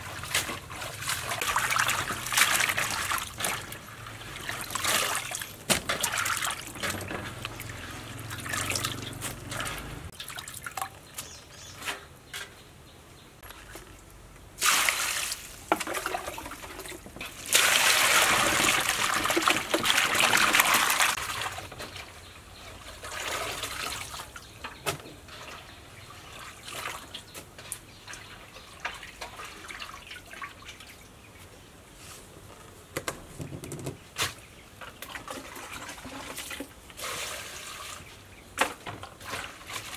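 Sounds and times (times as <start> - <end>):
water rushing into basin: 0.0 - 10.8, 14.6 - 21.6, 35.5 - 38.1
hands splashing water in basin: 0.1 - 11.0.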